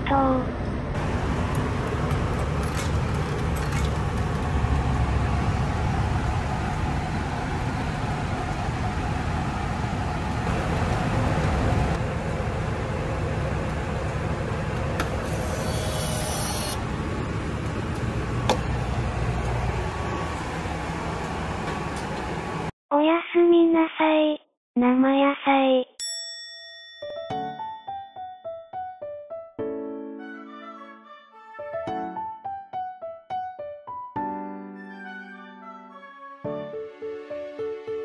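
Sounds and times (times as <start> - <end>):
vehicle rumbling in motion: 0.0 - 22.7.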